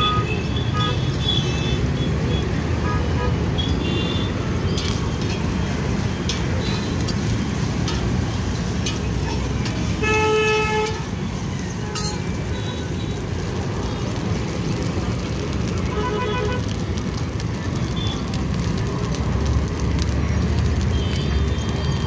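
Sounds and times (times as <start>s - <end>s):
traffic rumbling: 0.0s - 22.0s
vehicle horn tooting: 15.9s - 16.6s.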